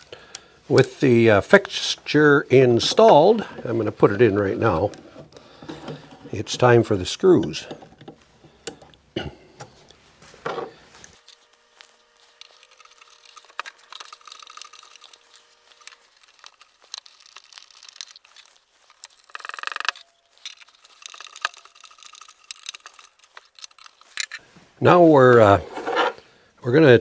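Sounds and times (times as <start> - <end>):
screwdriver clicks and scrapes: 11.1 - 24.4.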